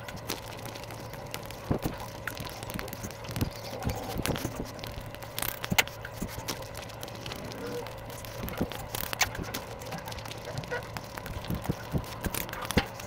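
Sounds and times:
chewing crisp food: 0:00.0 - 0:13.0
shell cracking: 0:00.1 - 0:13.0.

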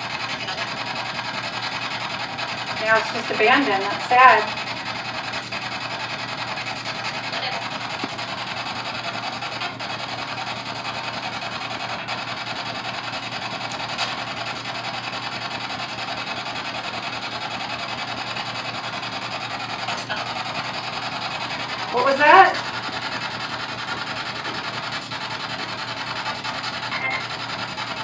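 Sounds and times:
word fragments in static: 0:02.8 - 0:04.6, 0:21.9 - 0:22.8
choppy radio static hiss: 0:02.8 - 0:04.7, 0:21.4 - 0:22.9, 0:26.9 - 0:27.4.

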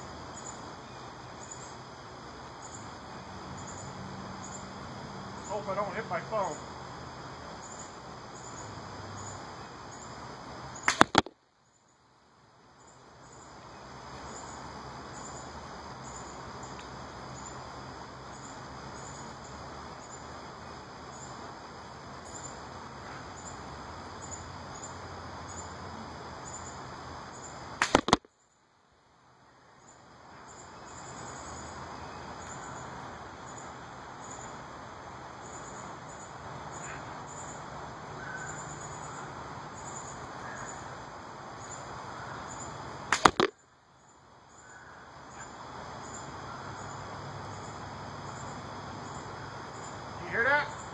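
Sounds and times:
crickets chirping: 0:00.0 - 0:50.9
arrow shots from a bow: 0:10.9 - 0:11.3, 0:27.8 - 0:28.3, 0:43.1 - 0:43.5.

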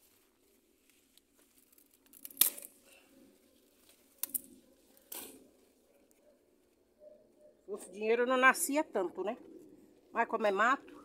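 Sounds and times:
rustling tearing leaves and stems: 0:00.0 - 0:05.6.

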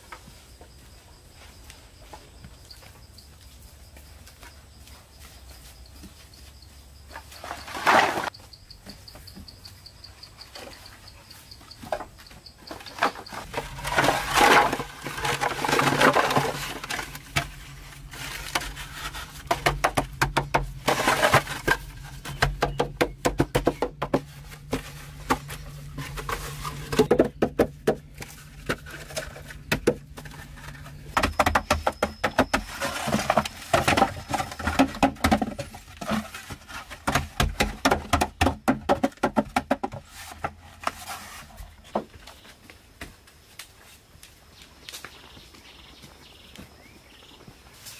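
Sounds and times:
bamboo scraping: 0:07.0 - 0:08.5, 0:11.8 - 0:42.6
bamboo poles knocking together: 0:18.2 - 0:42.2.

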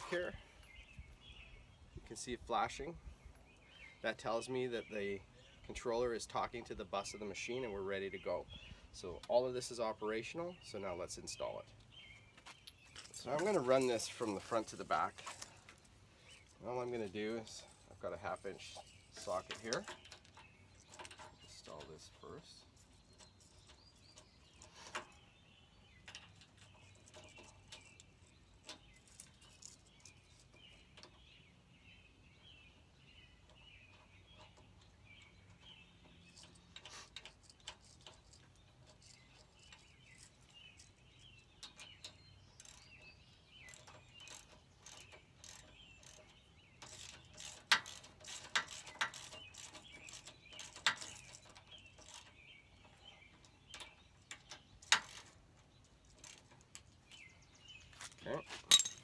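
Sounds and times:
birds chirping faintly: 0:00.0 - 0:59.0
hand ratchet clicking: 0:43.7 - 0:52.4, 0:53.7 - 0:55.4, 0:56.1 - 0:56.9.

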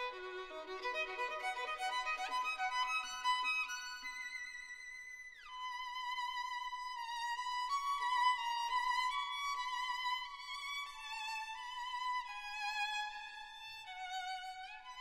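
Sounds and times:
solo violin melody: 0:00.0 - 0:15.0.

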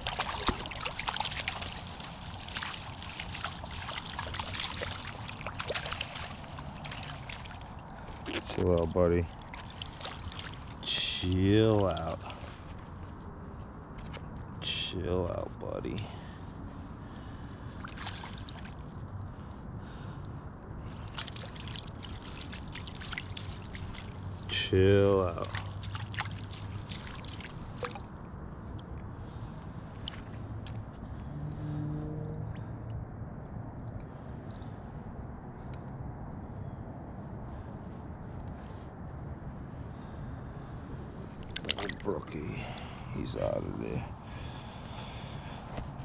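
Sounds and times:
fish splashing in water: 0:00.0 - 0:10.9, 0:17.8 - 0:19.0, 0:20.9 - 0:24.3, 0:25.3 - 0:28.1, 0:41.4 - 0:42.2
stream murmur: 0:00.0 - 0:12.9, 0:20.2 - 0:28.7, 0:41.2 - 0:46.0.

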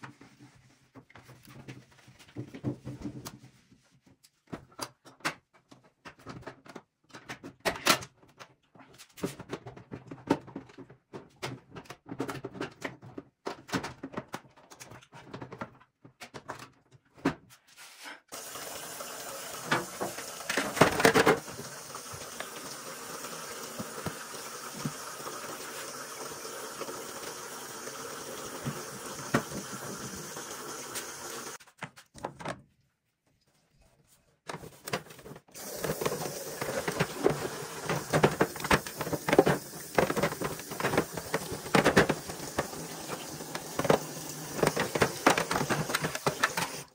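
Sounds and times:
plastic bin clattering: 0:19.6 - 0:22.6, 0:34.5 - 0:46.9.

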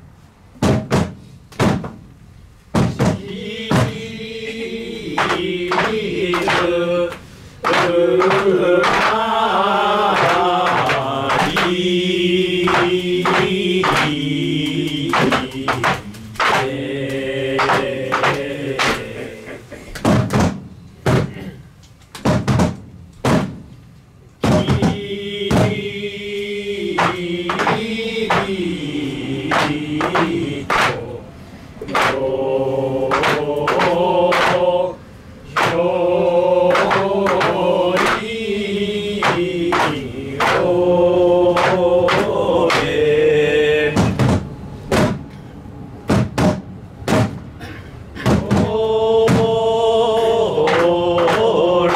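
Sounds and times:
sharp drum strikes: 0:00.6 - 0:02.1, 0:02.7 - 0:04.0, 0:07.6 - 0:11.9, 0:12.6 - 0:16.8, 0:20.0 - 0:21.6, 0:22.2 - 0:23.7, 0:24.4 - 0:25.9, 0:27.0 - 0:28.6, 0:35.6 - 0:35.8, 0:43.9 - 0:45.3, 0:46.1 - 0:49.6
voices chanting in unison: 0:02.8 - 0:19.9, 0:24.4 - 0:51.9.

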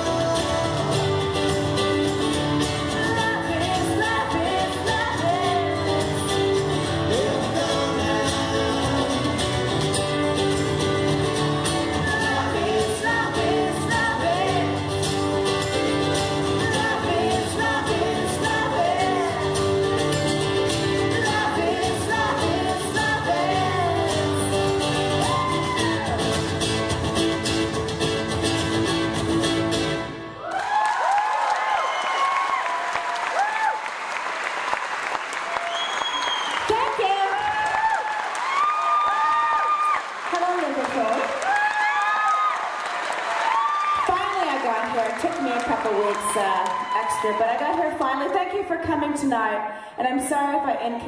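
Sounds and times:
strummed acoustic guitars: 0:00.0 - 0:30.4.

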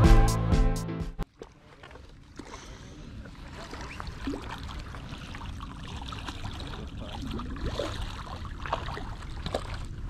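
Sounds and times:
water sloshing against rocks: 0:01.2 - 0:10.0.

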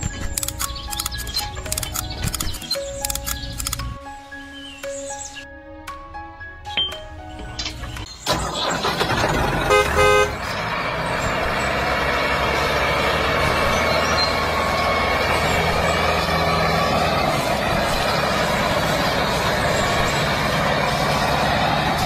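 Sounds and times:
tractor engine rumbling: 0:00.0 - 0:04.2, 0:06.6 - 0:22.0
horn toots: 0:08.9 - 0:10.6.

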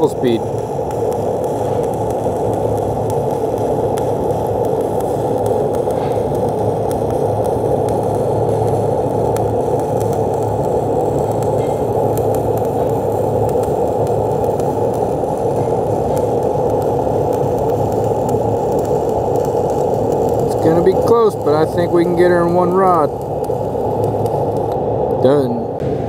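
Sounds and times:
welding arc crackling: 0:00.0 - 0:26.0.

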